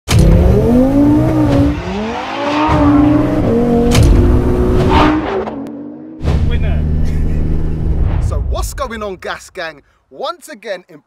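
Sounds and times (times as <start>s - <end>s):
car engine accelerating through gears: 0.1s - 8.1s.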